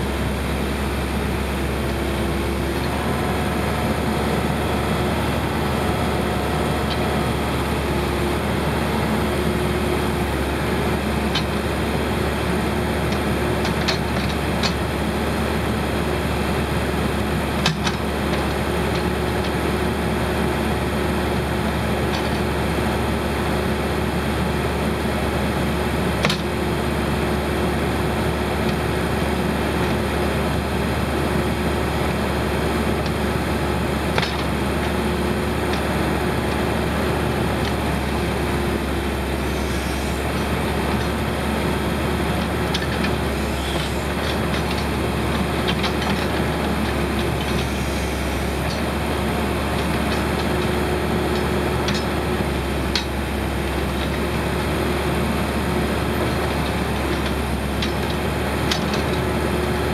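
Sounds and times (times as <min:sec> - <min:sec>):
backhoe pushing through brush: 0:00.0 - 0:59.9
diesel engine running: 0:00.0 - 0:59.9.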